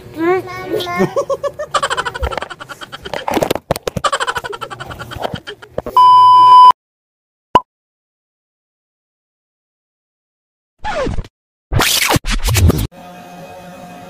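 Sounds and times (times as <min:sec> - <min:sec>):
people laughing: 0:00.8 - 0:05.9
electronic beep: 0:06.0 - 0:06.7.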